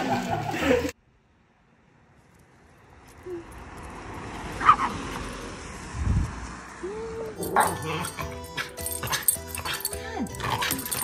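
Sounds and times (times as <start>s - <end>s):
traffic on wet street: 0.0s - 8.0s.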